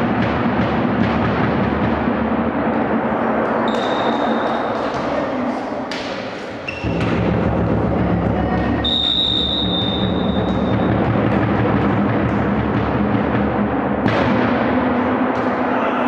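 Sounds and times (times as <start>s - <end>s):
spectators drumming: 0.0s - 16.0s
crowd cheering: 2.8s - 6.7s, 15.0s - 16.0s
whistle blast: 3.7s - 4.8s, 8.8s - 11.0s.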